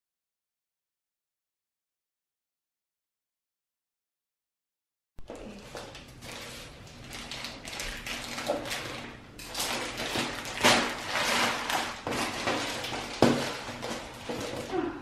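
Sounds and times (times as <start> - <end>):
plastic packaging crinkling: 5.2 - 15.0.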